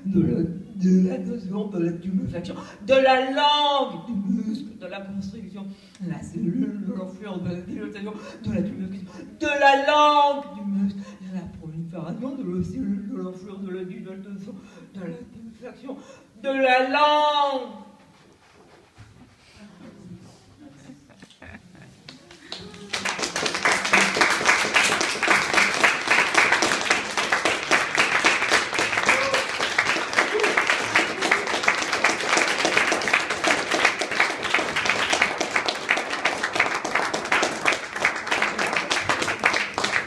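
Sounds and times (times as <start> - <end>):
audience applause: 22.1 - 40.0.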